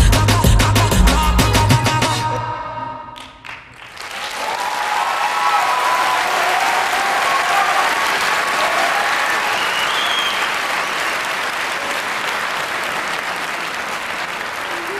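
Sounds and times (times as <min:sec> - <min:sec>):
audience applauding: 0:03.2 - 0:14.9.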